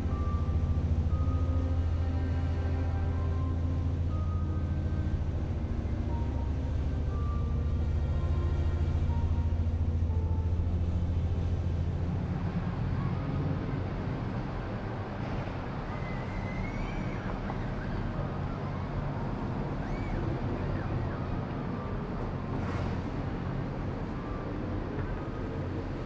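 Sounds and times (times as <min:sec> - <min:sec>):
faint high-pitched glides: 0:00.0 - 0:13.3
ship engine drone: 0:00.0 - 0:16.1
distant city traffic: 0:00.0 - 0:26.0.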